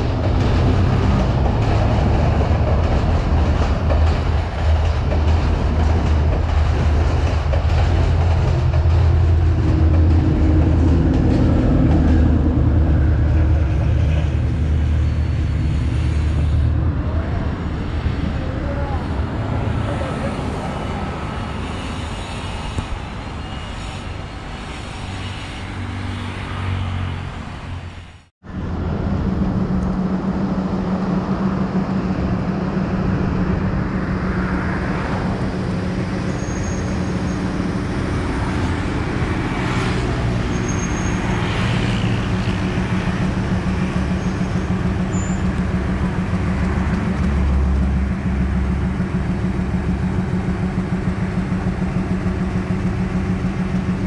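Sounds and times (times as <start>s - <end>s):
diesel locomotive engine droning: 0.0s - 54.0s
road traffic: 0.0s - 54.0s.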